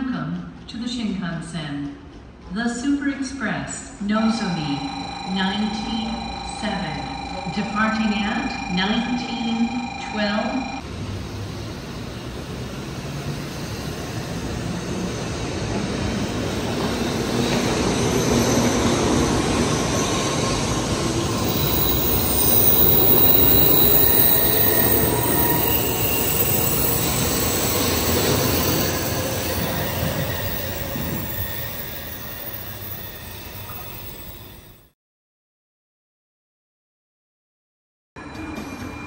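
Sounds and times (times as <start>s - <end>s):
train running noise: 4.2s - 34.9s.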